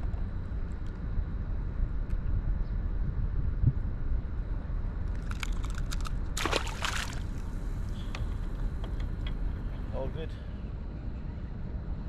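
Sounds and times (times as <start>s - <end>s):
fish splashing into water: 6.4s - 7.5s.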